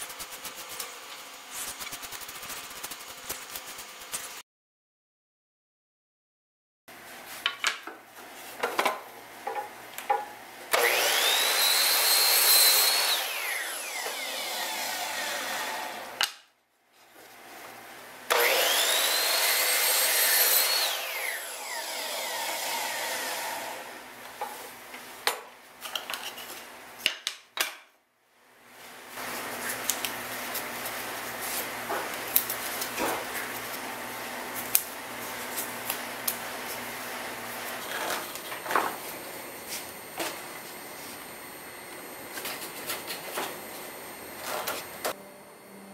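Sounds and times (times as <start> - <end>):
miter saw cutting wood: 10.7 - 16.2, 18.3 - 24.0.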